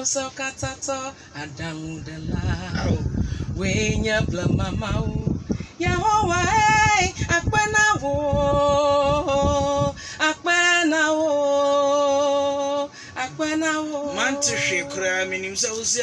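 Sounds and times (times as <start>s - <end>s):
low beat: 2.4s - 5.4s.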